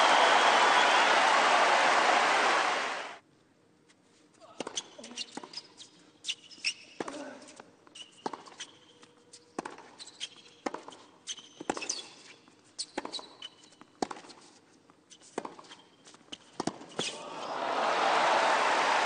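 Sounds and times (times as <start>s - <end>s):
crowd applause and cheering: 0.0s - 3.2s, 17.2s - 19.0s
sneaker squeaks: 4.4s - 17.5s
racket hitting tennis ball: 9.6s - 9.9s, 14.0s - 14.4s.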